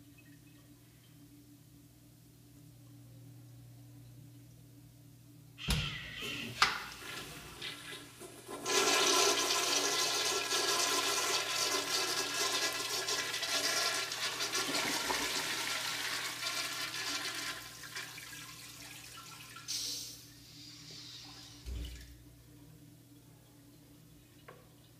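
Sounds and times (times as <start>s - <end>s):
toilet flushing water rush: 5.6s - 20.2s
short hiss: 19.7s - 21.4s.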